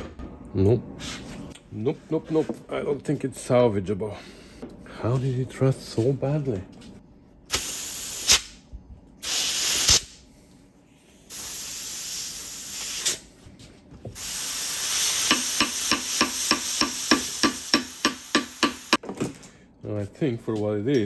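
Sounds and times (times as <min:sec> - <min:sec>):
compressed air hissing: 0:07.5 - 0:08.5, 0:09.2 - 0:10.2, 0:11.3 - 0:13.3, 0:14.2 - 0:19.0
hammer tapping on metal cylinder: 0:15.3 - 0:19.0.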